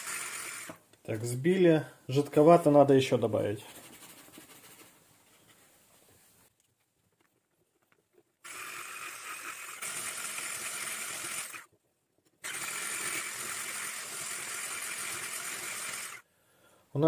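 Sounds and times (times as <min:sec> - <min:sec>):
electric hand blender whisking batter: 0:00.0 - 0:00.8, 0:08.5 - 0:11.7, 0:12.4 - 0:16.2.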